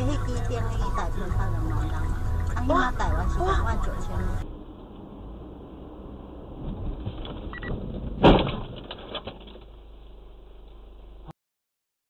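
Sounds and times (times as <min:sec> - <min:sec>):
engine and road hum inside car: 0:00.0 - 0:11.3
loud collision bang: 0:06.6 - 0:09.0.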